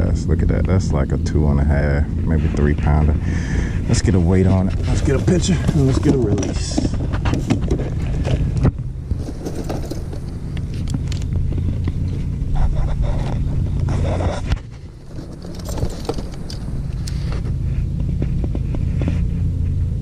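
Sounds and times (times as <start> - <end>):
low rumble: 0.0 - 20.0
knocks and rustles: 3.9 - 19.9.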